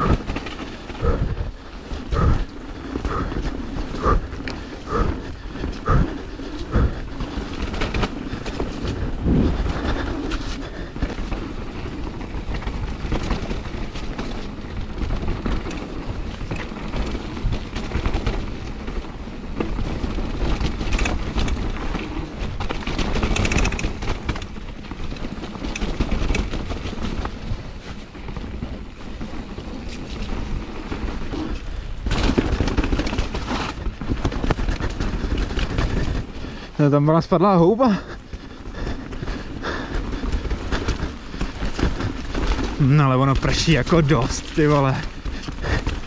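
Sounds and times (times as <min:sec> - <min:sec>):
wind on microphone: 0:00.0 - 0:14.0
bike clattering over bumps: 0:00.0 - 0:46.0
bike tyres on wet ground: 0:00.0 - 0:46.0.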